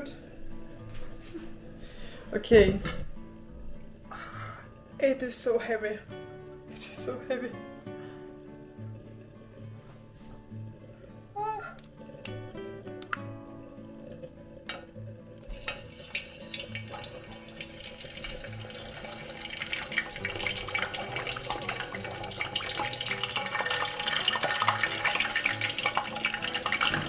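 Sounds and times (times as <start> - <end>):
meat deep-frying in oil: 15.5 - 27.0.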